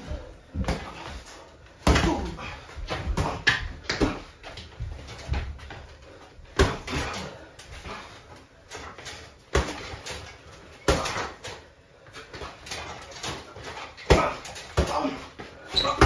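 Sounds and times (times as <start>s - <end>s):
boxing gloves thudding: 1.8s - 5.8s, 6.4s - 8.1s, 8.7s - 11.6s, 12.3s - 16.0s.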